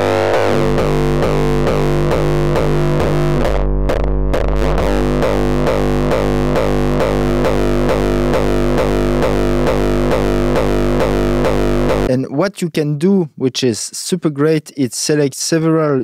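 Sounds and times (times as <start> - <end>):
distorted kick drum loop: 0.0 - 12.1
distorted bass tone: 0.0 - 12.3.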